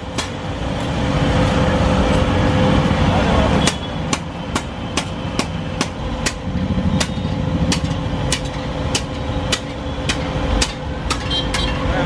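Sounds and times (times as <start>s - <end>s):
hammer striking metal: 3.6s - 11.8s.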